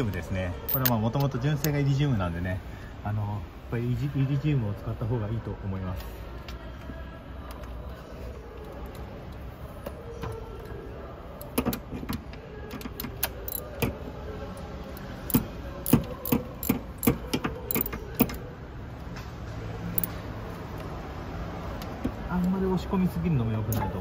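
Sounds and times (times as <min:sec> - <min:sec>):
ratchet wrench clicking: 0:00.7 - 0:01.3, 0:13.2 - 0:13.8, 0:15.3 - 0:18.4.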